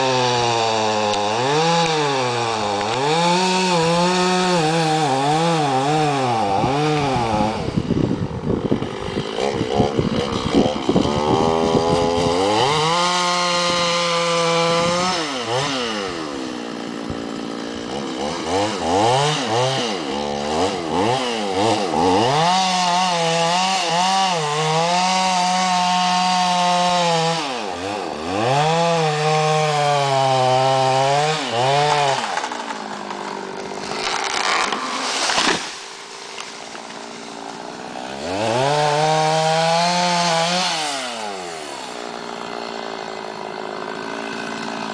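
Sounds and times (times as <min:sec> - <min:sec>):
chainsaw cutting wood: 0:00.0 - 0:44.9.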